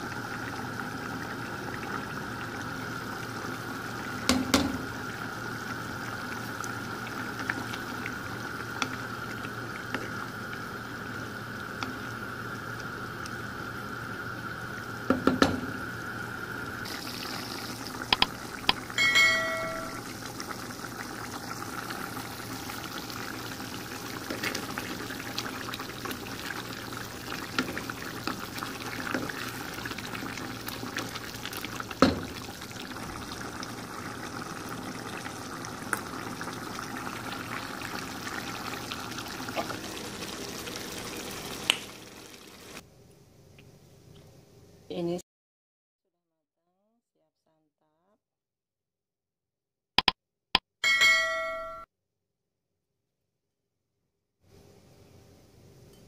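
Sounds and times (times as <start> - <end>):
stew simmering in a pan: 0.0 - 42.8
knocks against a pan: 4.3 - 4.8, 15.1 - 15.7, 32.0 - 32.4
ringing clink: 19.0 - 20.0, 50.8 - 51.9.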